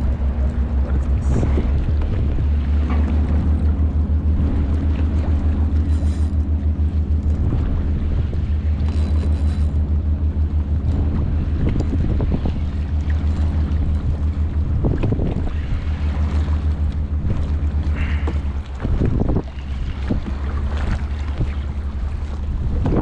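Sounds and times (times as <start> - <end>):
choppy sea water: 0.0 - 23.0
low rumble with hum: 0.0 - 23.0
wind on microphone: 0.0 - 23.0.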